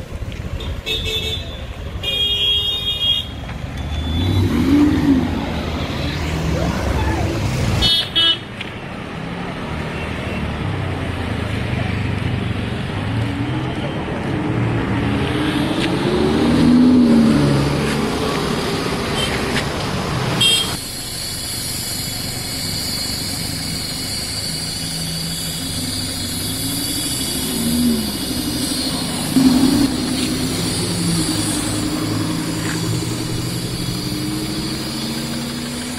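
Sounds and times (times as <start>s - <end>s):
sports car engine revving: 26.4s - 35.9s.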